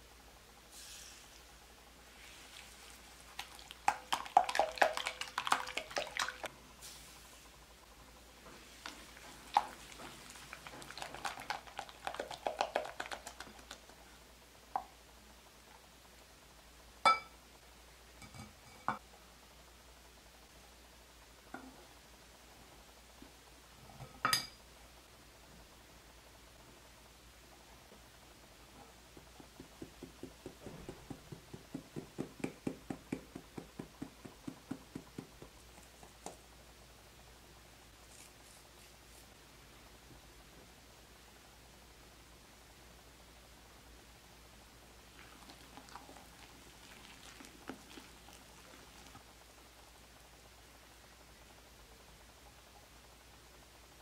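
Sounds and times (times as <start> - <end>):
whisk knocking on bowl: 9.5 - 13.8, 29.1 - 36.2.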